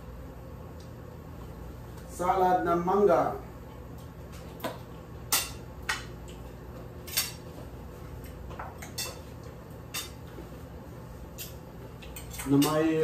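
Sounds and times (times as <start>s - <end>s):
low steady hum: 0.0s - 13.0s
cutlery clinking against plates: 7.0s - 7.4s, 8.2s - 9.3s, 9.9s - 10.2s, 11.4s - 13.0s.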